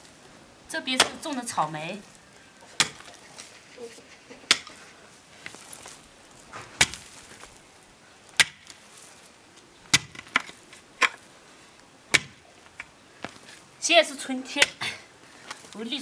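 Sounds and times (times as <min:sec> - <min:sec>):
hoe chopping into hard soil: 0:02.8 - 0:03.1, 0:06.5 - 0:07.2, 0:12.1 - 0:12.4.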